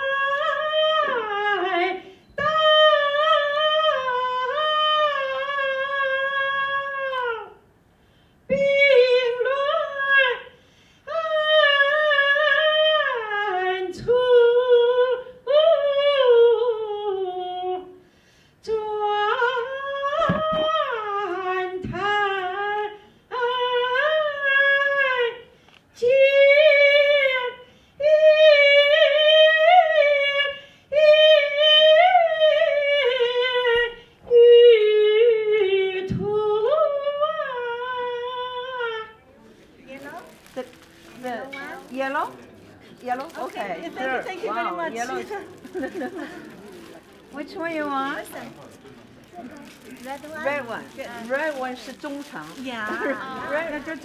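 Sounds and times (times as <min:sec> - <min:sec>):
woman singing opera aria: 0:00.0 - 0:07.6, 0:08.5 - 0:18.0, 0:18.6 - 0:39.2.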